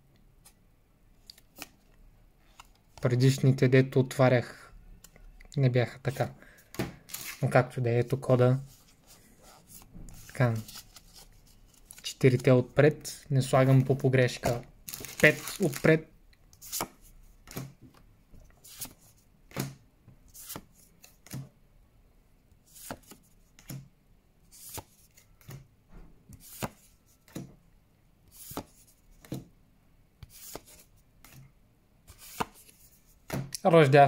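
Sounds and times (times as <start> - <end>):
trading cards swishing: 30.3 - 31.4, 32.1 - 33.0.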